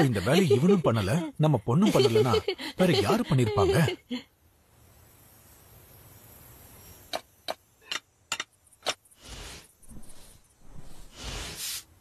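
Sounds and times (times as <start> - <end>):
rough rubbing noise: 9.2 - 11.8.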